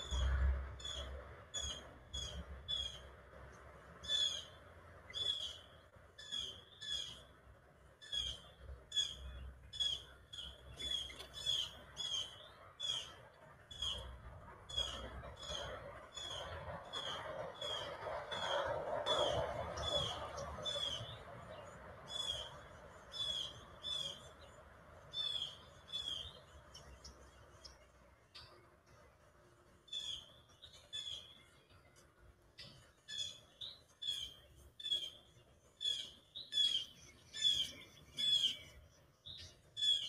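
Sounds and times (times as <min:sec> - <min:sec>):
songbird chip calls: 0:04.0 - 0:07.3, 0:08.0 - 0:14.1, 0:25.1 - 0:27.6, 0:32.7 - 0:40.0.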